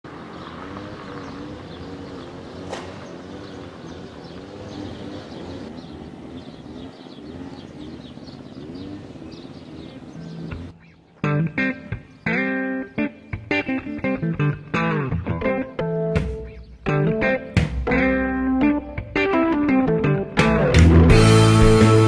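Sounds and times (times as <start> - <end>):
doves cooing: 0.1 - 14.1
small birds chirping: 0.1 - 17.6.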